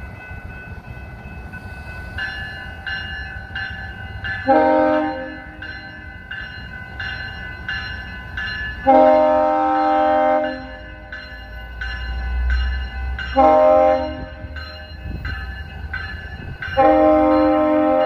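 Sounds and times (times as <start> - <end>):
crossing signal bells ringing: 0.0 - 18.0
train rumbling past: 0.0 - 18.0
train horn blasts: 4.4 - 5.6, 8.8 - 10.8, 13.3 - 14.5, 16.8 - 18.0.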